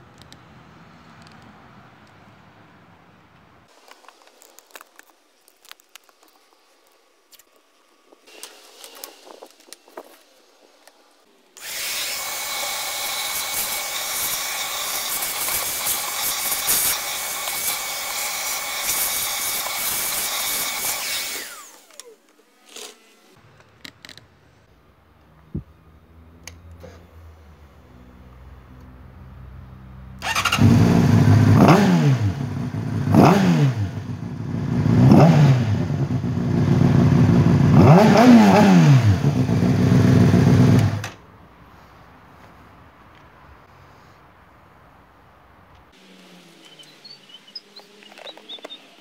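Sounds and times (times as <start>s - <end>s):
handling noises: 3.4s - 11.7s, 45.6s - 49.0s
vacuum hose sucking dirt: 3.7s - 11.0s, 11.6s - 23.4s
shop vacuum running: 11.6s - 22.2s.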